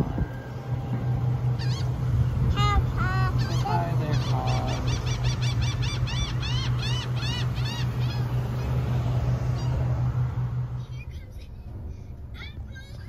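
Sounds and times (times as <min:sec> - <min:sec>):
low hum: 0:00.0 - 0:13.0
bird honking calls: 0:00.6 - 0:10.0.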